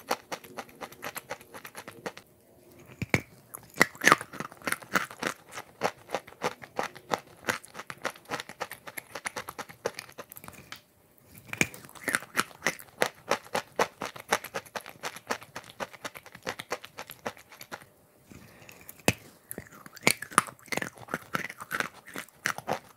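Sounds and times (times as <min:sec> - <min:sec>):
chewing chalk crunching: 0:00.0 - 0:22.9.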